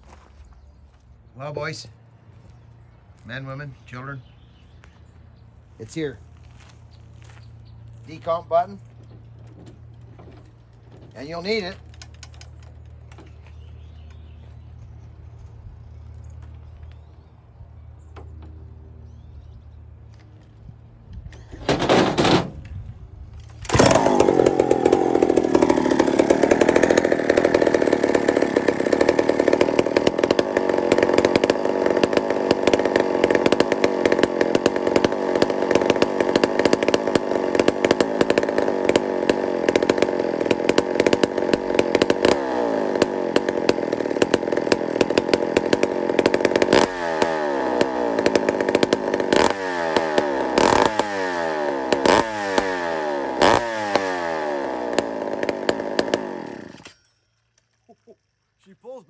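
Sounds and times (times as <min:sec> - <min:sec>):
chainsaw starting and running: 0:08.2 - 0:14.2, 0:23.5 - 0:58.6.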